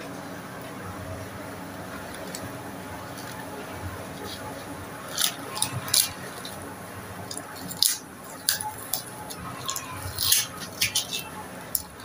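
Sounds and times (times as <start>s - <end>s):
paper crinkling and rustling: 1.9s - 6.7s.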